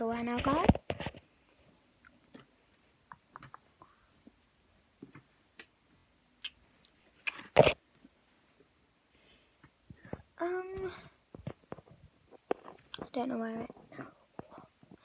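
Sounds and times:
clicks and knocks of rummaging: 9.6 - 15.0.

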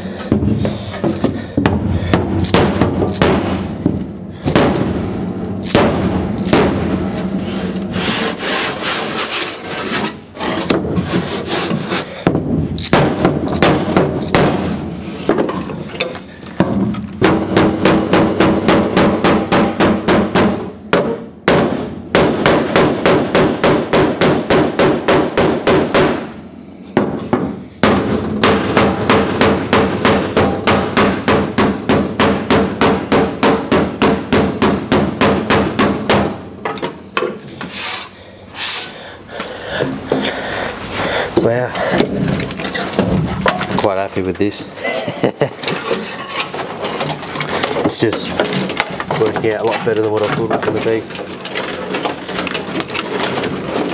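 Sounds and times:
hammer blows on sheet steel: 16.6 - 37.4.

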